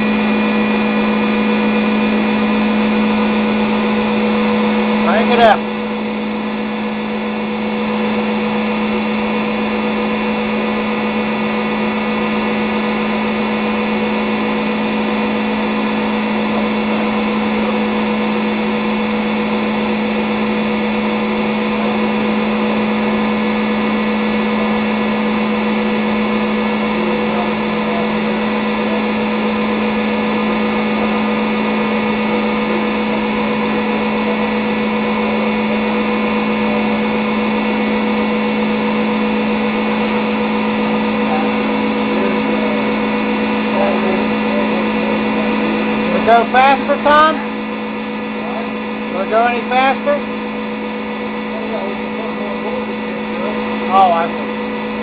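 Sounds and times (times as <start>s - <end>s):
electric engine humming: 0.0s - 55.0s.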